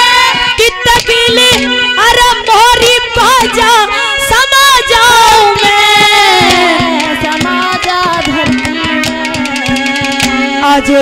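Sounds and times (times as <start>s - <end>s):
hand drum beat: 0.0s - 1.8s, 5.4s - 11.0s.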